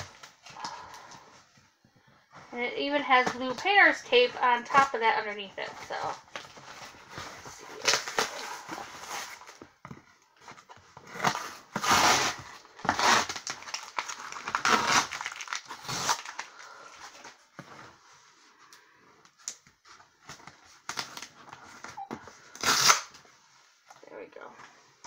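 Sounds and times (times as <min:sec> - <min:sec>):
tape ripping off cardboard: 0:11.0 - 0:16.5, 0:22.6 - 0:23.2
scissors cutting tape: 0:22.6 - 0:23.1.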